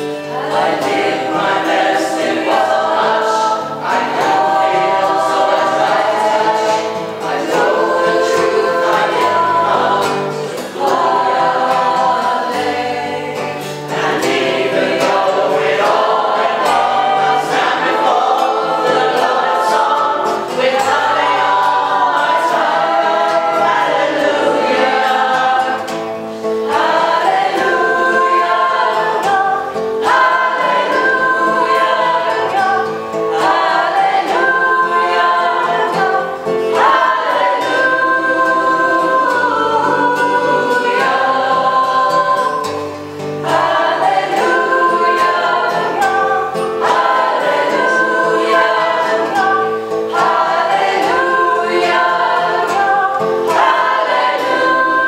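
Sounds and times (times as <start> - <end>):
acoustic guitar: 0.0 - 55.0
mixed choir singing: 0.0 - 55.0.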